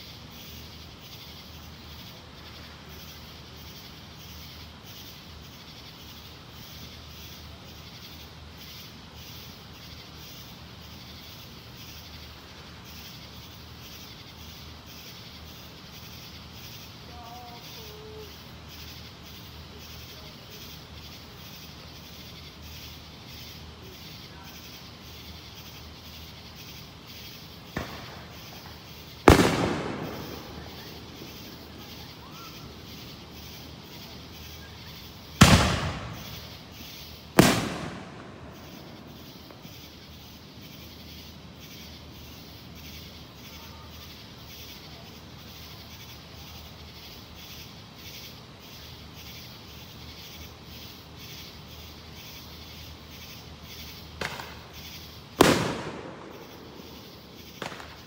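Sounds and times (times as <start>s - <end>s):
fireworks bangs echoing: 27.6s - 34.5s, 35.3s - 39.9s, 54.2s - 54.8s, 55.4s - 58.0s
faint firework pop: 27.8s - 28.2s, 54.2s - 54.6s, 57.6s - 58.0s.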